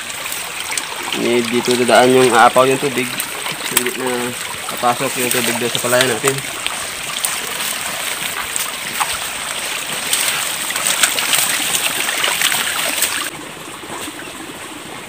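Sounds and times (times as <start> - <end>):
crackles of vegetation: 0.0 - 14.4
running water rushing: 0.0 - 15.0
footsteps through undergrowth: 4.5 - 13.3.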